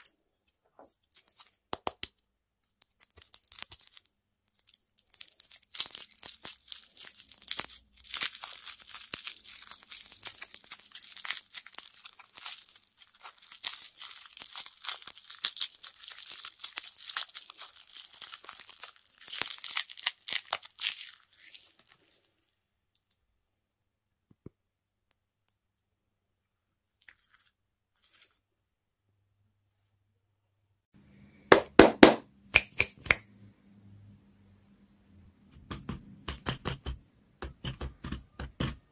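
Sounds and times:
candy wrapper crackling: 0:00.0 - 0:23.2.

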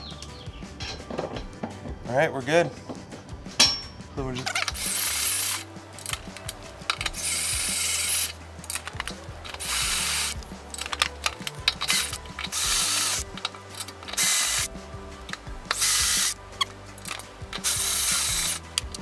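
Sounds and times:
drill boring through steel: 0:04.6 - 0:05.6, 0:07.1 - 0:08.4, 0:09.6 - 0:10.4, 0:11.9 - 0:13.3, 0:14.2 - 0:14.7, 0:15.8 - 0:16.4, 0:17.6 - 0:18.6.

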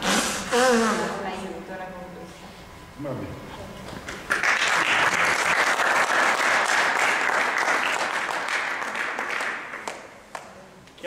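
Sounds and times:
audience applauding: 0:04.1 - 0:10.5.

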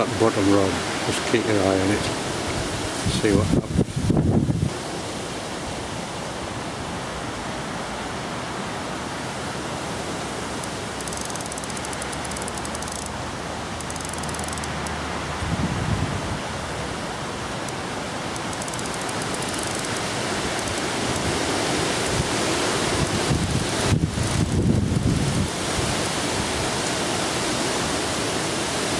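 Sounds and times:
fast-flowing river: 0:00.0 - 0:28.9
wind buffeting microphone: 0:02.5 - 0:04.8, 0:15.4 - 0:17.0, 0:20.4 - 0:26.8
wind rushing: 0:19.4 - 0:26.7.

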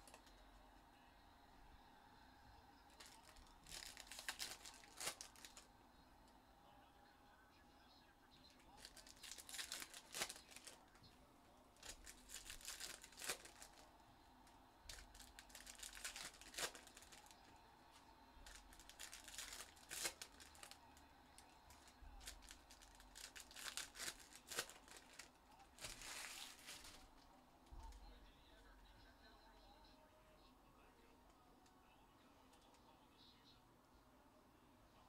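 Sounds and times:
wrappers tearing and crinkling: 0:02.9 - 0:05.7, 0:08.8 - 0:11.0, 0:11.8 - 0:13.9, 0:14.9 - 0:17.5, 0:18.4 - 0:20.8, 0:21.4 - 0:27.2.

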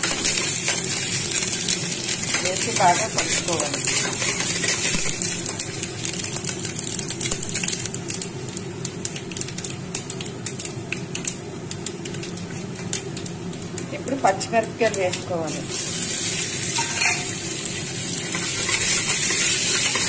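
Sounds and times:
seeds popping and crackling: 0:00.0 - 0:15.7
oil sizzling: 0:00.0 - 0:20.0.

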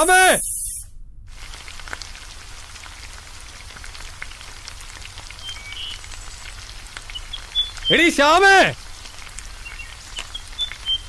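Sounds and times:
hot oil sizzling and crackling: 0:00.0 - 0:11.0.

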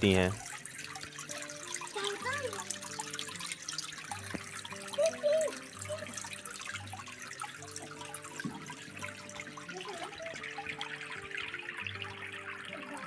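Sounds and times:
water trickling into a pool: 0:00.0 - 0:13.0.

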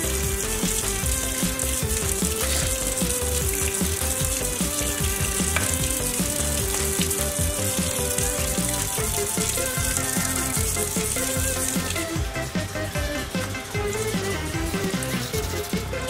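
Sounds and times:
background music with beat: 0:00.0 - 0:16.0
faucet water splashing: 0:00.0 - 0:16.0.

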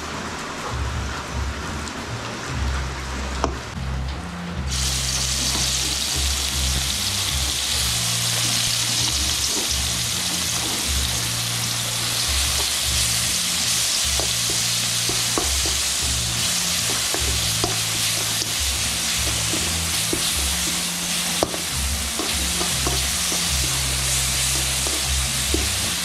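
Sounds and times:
paste sizzling in hot oil: 0:04.7 - 0:26.0
spoon stirring in a wok: 0:12.0 - 0:26.0.

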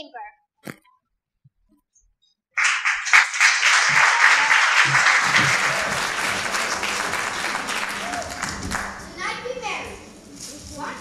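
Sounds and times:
audience applause: 0:02.6 - 0:09.3.

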